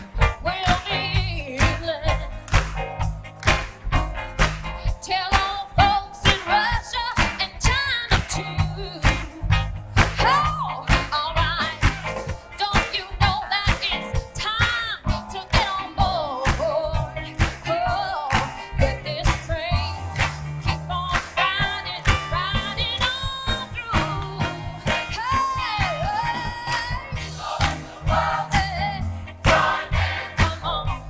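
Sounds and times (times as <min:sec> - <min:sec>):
woman singing lead: 0:00.0 - 0:02.6, 0:05.0 - 0:31.0
upbeat soul band: 0:00.0 - 0:31.0
gospel choir singing: 0:25.7 - 0:31.0.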